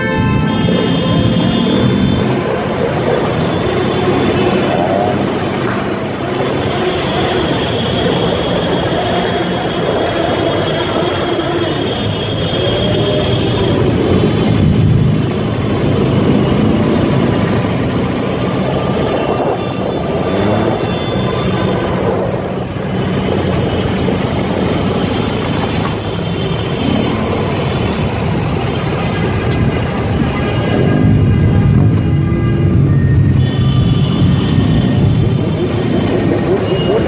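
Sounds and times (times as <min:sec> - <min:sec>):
road and wind noise: 0:00.0 - 0:37.0
motorcycle engine revving: 0:12.5 - 0:32.0, 0:33.2 - 0:37.0.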